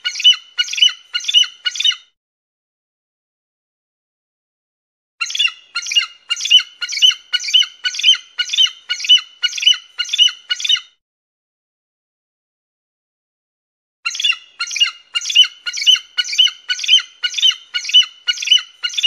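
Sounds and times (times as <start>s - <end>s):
eagle chirping calls: 0.0s - 2.0s, 5.2s - 10.9s, 14.1s - 19.0s.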